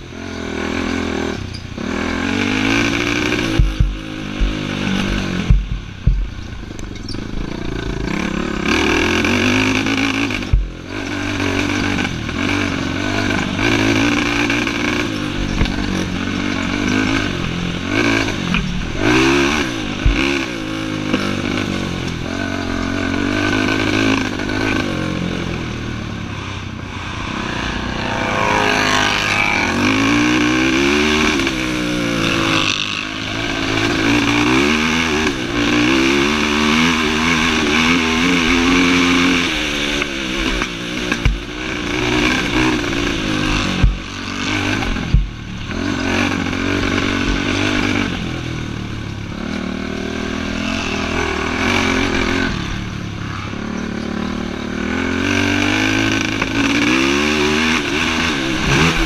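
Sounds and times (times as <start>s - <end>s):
atv engine revving: 0.0s - 59.0s
sharp knocks: 3.4s - 6.4s.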